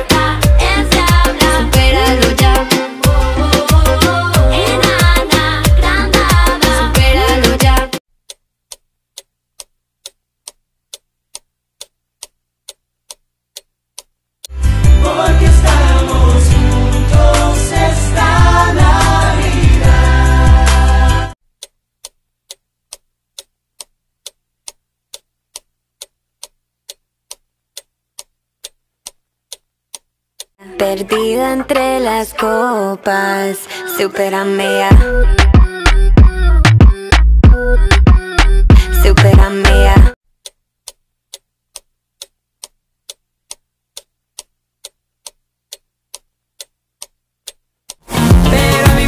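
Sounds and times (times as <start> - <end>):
clock ticking: 0.0 - 14.2, 21.6 - 31.8, 34.9 - 49.0.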